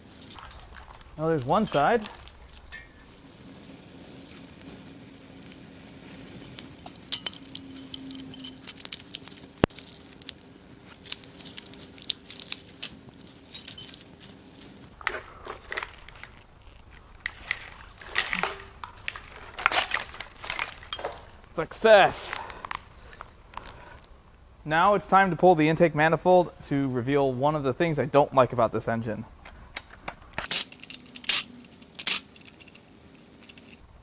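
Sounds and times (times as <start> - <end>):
wiring loom rustling and clattering: 0.0 - 3.2, 11.0 - 24.1
faint steady hum: 0.0 - 34.0
plastic connectors unclipping: 15.0 - 21.6.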